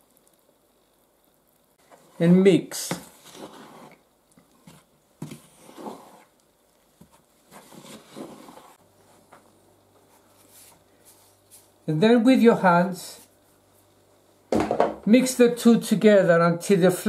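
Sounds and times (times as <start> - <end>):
wooden spoon scraping a bowl: 1.9 - 6.4, 7.5 - 8.8.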